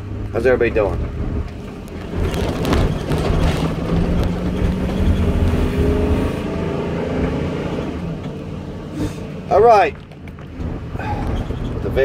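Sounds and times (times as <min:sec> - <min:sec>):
truck engine idling: 0:08.8 - 0:12.0.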